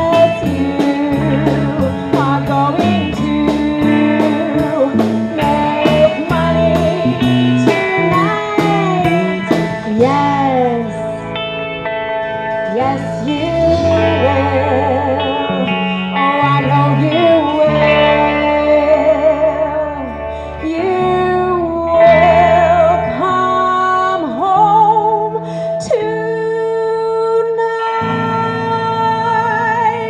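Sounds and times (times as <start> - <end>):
woman singing with vibrato: 0.0 - 11.4, 12.6 - 30.0
rock band guitar and bass: 0.0 - 30.0.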